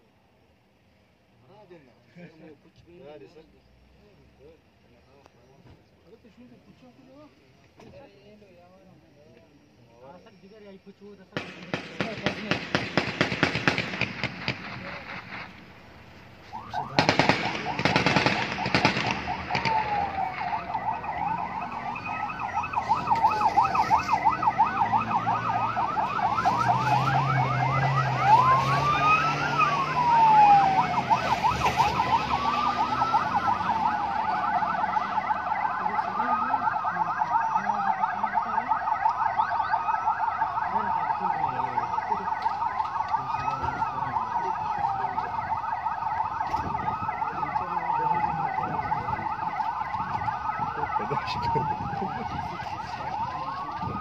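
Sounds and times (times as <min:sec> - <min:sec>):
emergency vehicle sirens: 0:03.9 - 0:54.0
rapid gunfire: 0:11.4 - 0:15.6, 0:16.9 - 0:20.0
vehicle engine passing: 0:13.9 - 0:37.4.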